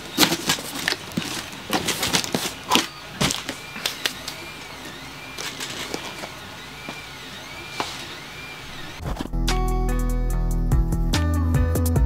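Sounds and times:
stepper motor whine: 0.0s - 9.3s.

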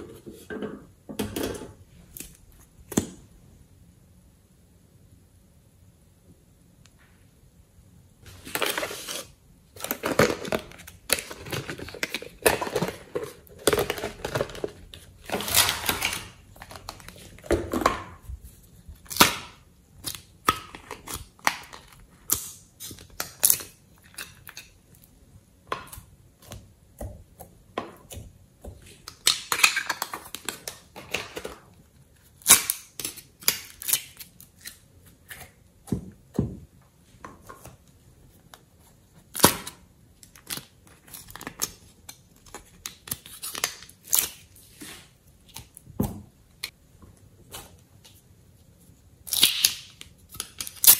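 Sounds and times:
plastic molds crinkling and clicking: 9.8s - 18.3s.

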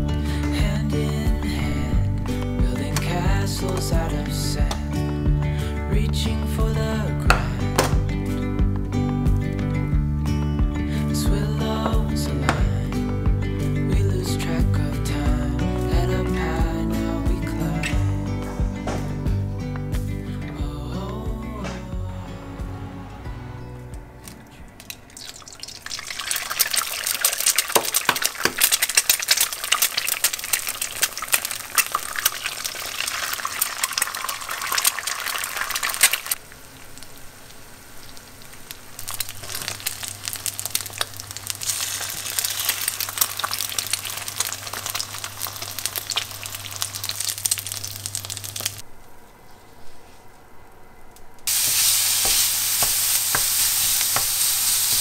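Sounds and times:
oil sizzling and crackling: 24.8s - 48.9s, 51.5s - 55.0s.

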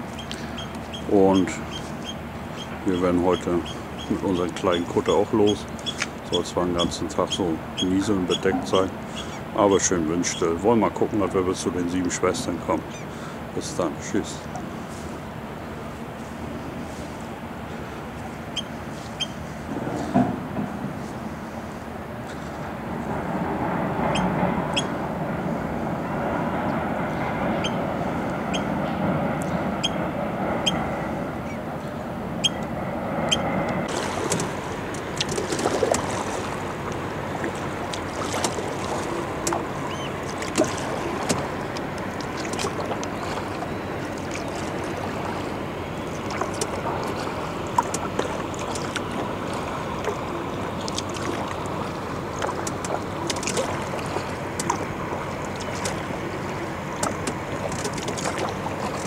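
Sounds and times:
paddle drips and splashes: 5.6s - 6.3s, 33.8s - 59.0s
water washing: 33.6s - 59.0s.

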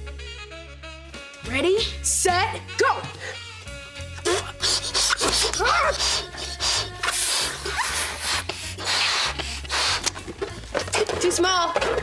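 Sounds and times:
background music with bass line: 0.0s - 12.0s
people blowing into balloons: 3.2s - 10.9s.

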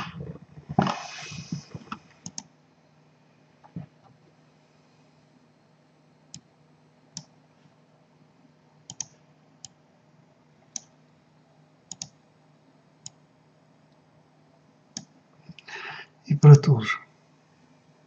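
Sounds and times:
faint low hum: 0.0s - 18.0s
computer mouse clicking: 2.2s - 2.5s, 8.9s - 9.8s, 11.9s - 12.2s.

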